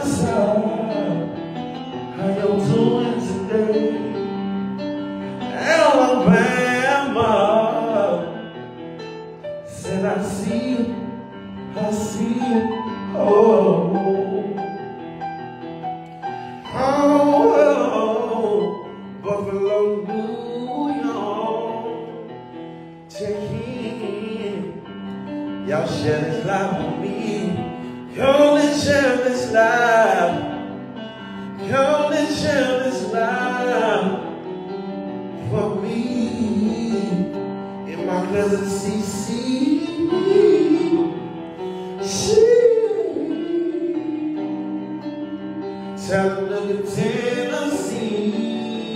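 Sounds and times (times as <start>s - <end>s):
instrumental backing music: 0.0s - 48.9s
person singing slow melody: 35.4s - 48.9s.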